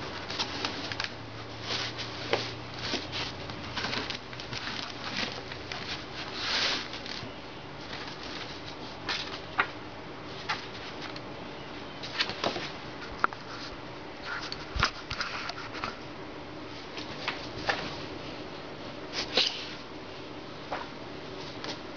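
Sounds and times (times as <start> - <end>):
paper rustling: 0.0 - 11.3, 12.0 - 16.0
faint steady hum: 0.0 - 21.9.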